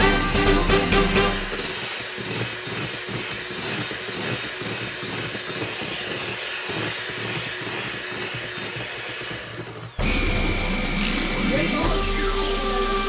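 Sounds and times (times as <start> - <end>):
beaters whipping in metal bowl: 0.0 - 10.2
electric hand mixer whining: 0.0 - 13.0.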